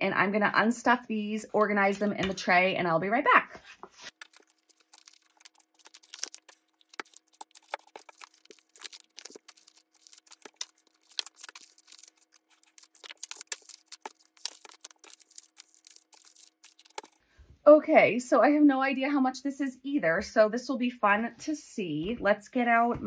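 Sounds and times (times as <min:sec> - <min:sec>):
paper envelopes rustling: 0:03.6 - 0:17.2.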